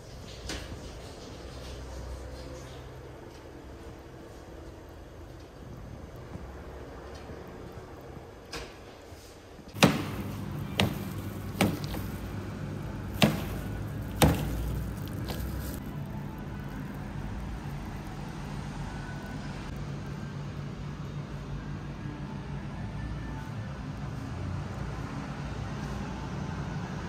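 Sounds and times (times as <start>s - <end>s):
sharp knocks: 9.8s - 12.4s, 13.1s - 15.8s
steady low hum: 9.8s - 21.3s.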